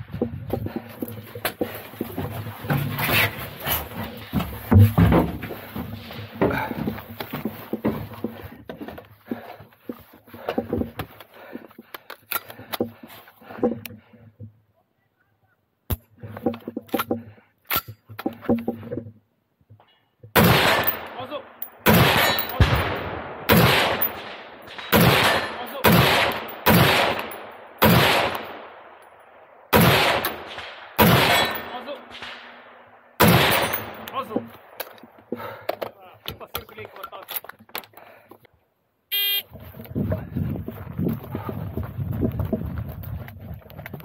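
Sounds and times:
loud gunshots with echo: 20.4 - 29.0, 29.7 - 34.1.

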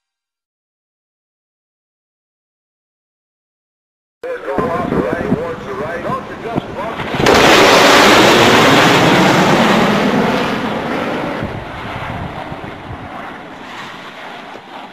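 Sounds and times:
jet fly-by roar: 4.3 - 14.9.

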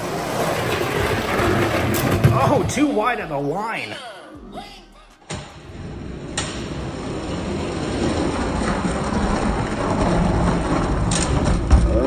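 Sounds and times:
toy wheels rolling on plastic: 7.1 - 12.0.

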